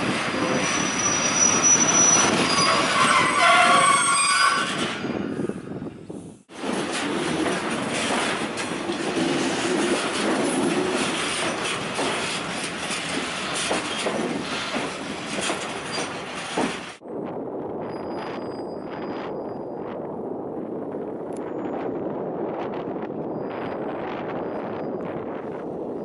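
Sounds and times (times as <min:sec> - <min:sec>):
freight wagons rumbling on rails: 0:00.0 - 0:26.0
wheels clicking over rail joints: 0:06.5 - 0:17.0.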